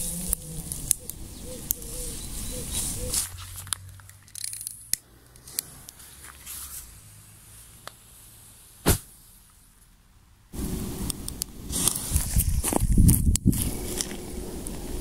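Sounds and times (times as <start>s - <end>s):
rustling in dry leaves: 0.0s - 9.8s, 10.6s - 15.0s
steady hiss: 10.5s - 15.0s.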